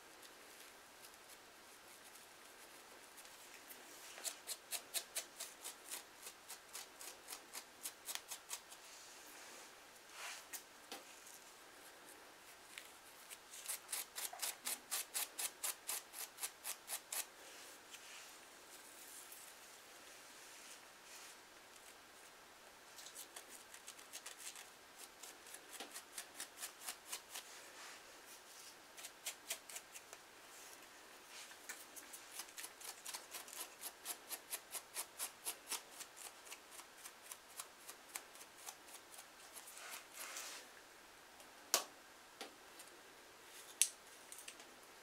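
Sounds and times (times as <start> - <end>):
comb scratching scalp: 0.6 - 8.9, 12.8 - 17.3, 23.0 - 27.6, 29.0 - 30.1, 31.8 - 40.6.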